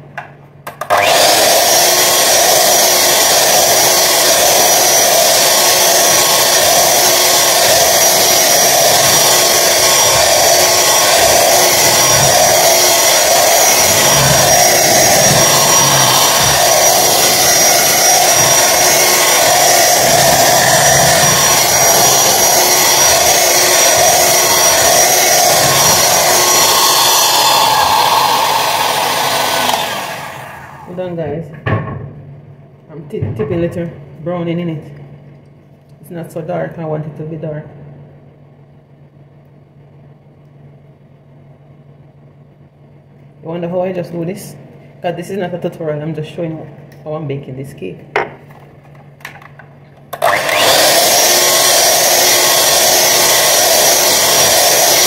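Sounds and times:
electric hand mixer running: 0:00.8 - 0:31.0, 0:50.2 - 0:55.0.

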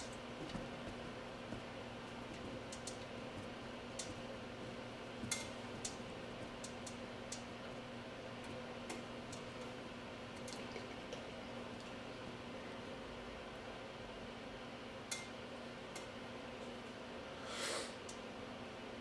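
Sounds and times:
low electrical hum: 0:00.0 - 0:19.0
small clicks and ticks: 0:02.3 - 0:07.5, 0:08.4 - 0:09.8.

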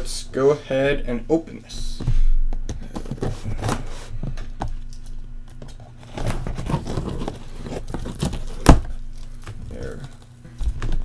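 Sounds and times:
cardboard flaps scraping and rustling: 0:02.8 - 0:04.2, 0:05.6 - 0:11.0
tape tearing: 0:04.9 - 0:11.0.

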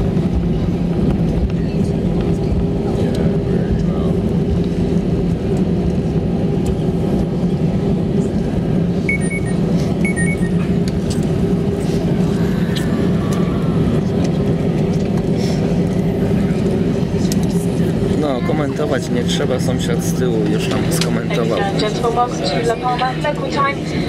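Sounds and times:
airliner cabin rumble: 0:00.0 - 0:24.0
low engine hum: 0:00.0 - 0:24.0
faint short beeps: 0:09.1 - 0:10.6.

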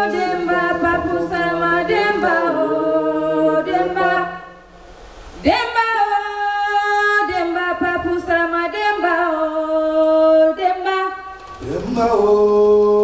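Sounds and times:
person singing unaccompanied: 0:00.0 - 0:04.4.

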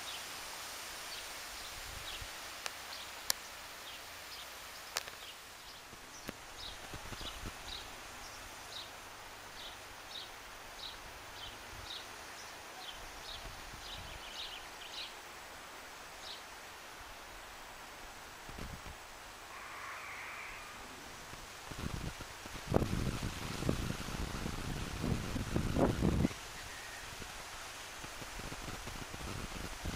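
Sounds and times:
wind through foliage: 0:00.0 - 0:29.9
bird chirping: 0:19.5 - 0:21.1.

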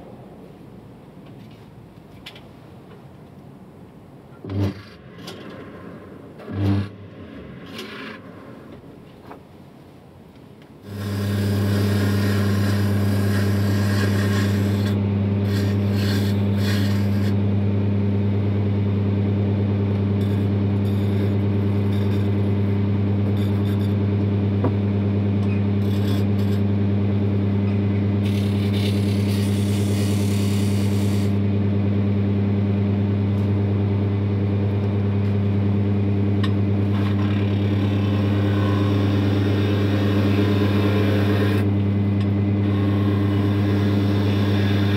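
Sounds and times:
chisel scraping spinning wood: 0:10.8 - 0:17.4, 0:20.0 - 0:24.0, 0:25.4 - 0:26.8, 0:28.2 - 0:31.4, 0:36.4 - 0:41.7, 0:42.6 - 0:44.9
wood lathe motor hum: 0:10.8 - 0:17.8, 0:19.2 - 0:31.6, 0:34.6 - 0:44.9.

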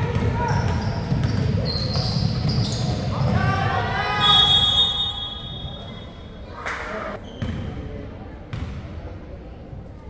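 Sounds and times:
referee's whistle: 0:04.2 - 0:06.4.

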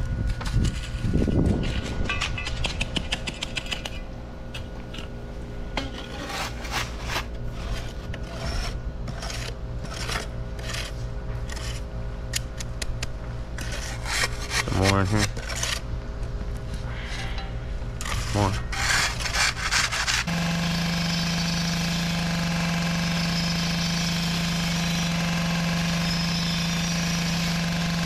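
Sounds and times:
tools scraping over sand: 0:05.8 - 0:11.9, 0:17.0 - 0:20.3.

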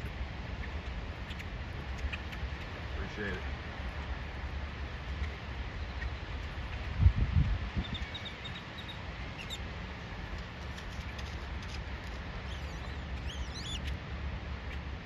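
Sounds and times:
low background rumble: 0:00.0 - 0:15.0
small birds chirping: 0:00.0 - 0:15.0
bird sweeping calls: 0:07.8 - 0:09.6, 0:12.4 - 0:14.0.

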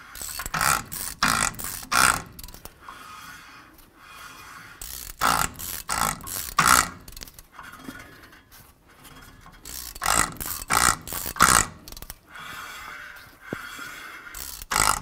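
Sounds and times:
ratchet wrench pawl clicking: 0:00.0 - 0:03.0, 0:04.8 - 0:07.4, 0:09.6 - 0:12.2, 0:14.3 - 0:15.0.

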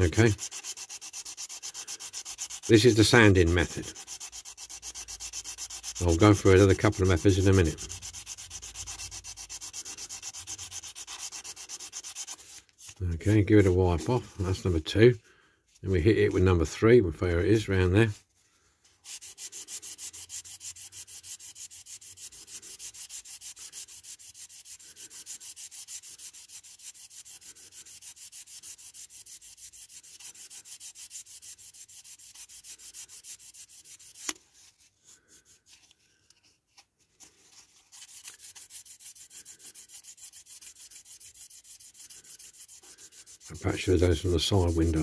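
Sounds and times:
buffer block rubbing plastic: 0:00.0 - 0:14.1, 0:36.8 - 0:45.0.

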